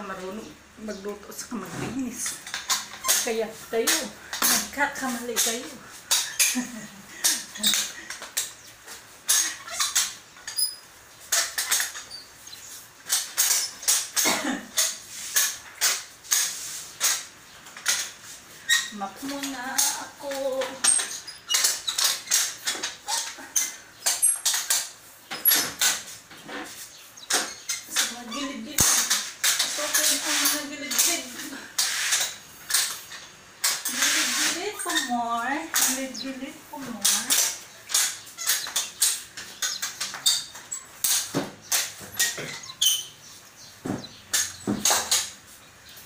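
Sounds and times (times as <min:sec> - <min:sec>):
mop swishing over floor: 0:01.4 - 0:10.6, 0:11.2 - 0:23.5, 0:24.1 - 0:42.8
high squeaks: 0:02.0 - 0:14.2, 0:14.8 - 0:45.4
mop swishing on floor: 0:25.6 - 0:33.1, 0:33.9 - 0:40.4.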